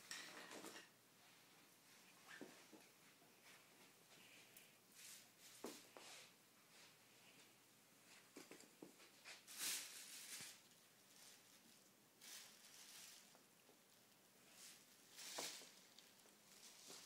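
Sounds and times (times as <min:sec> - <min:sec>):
plastic bag crinkling: 0:09.2 - 0:17.0.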